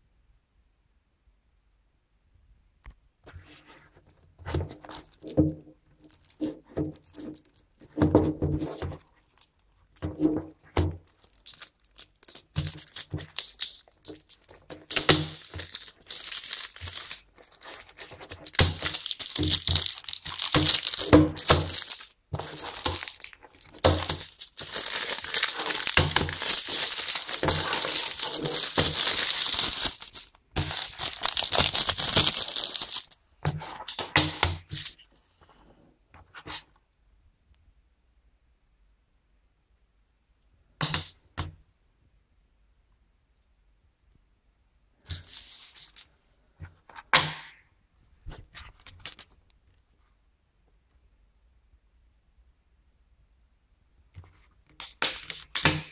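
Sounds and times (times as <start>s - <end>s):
plastic shrink-wrap crinkling: 4.6s - 8.0s, 10.6s - 33.2s.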